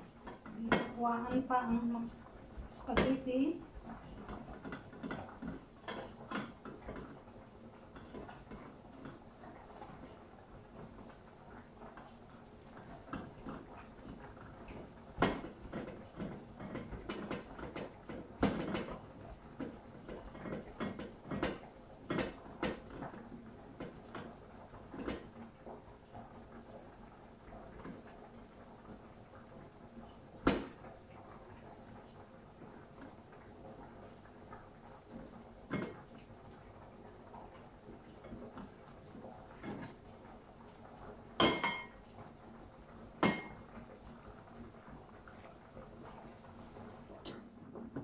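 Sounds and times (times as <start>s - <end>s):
cookware and utensils clinking: 41.4s - 42.0s, 43.2s - 43.6s.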